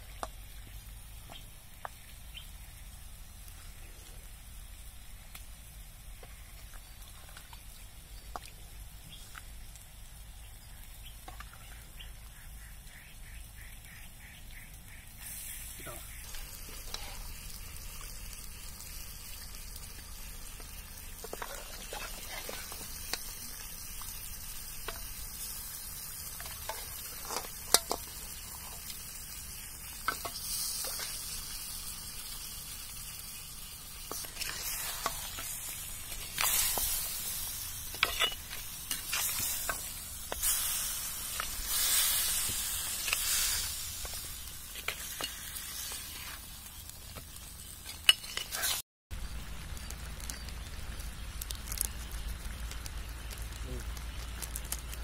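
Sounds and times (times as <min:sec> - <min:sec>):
meat sizzling in a pot: 0:00.0 - 0:55.0
metal spoon scraping and clinking: 0:37.9 - 0:39.8, 0:47.8 - 0:48.8.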